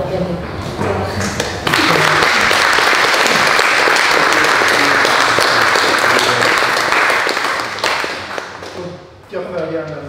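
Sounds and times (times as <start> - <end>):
audience applauding: 1.6 - 8.8.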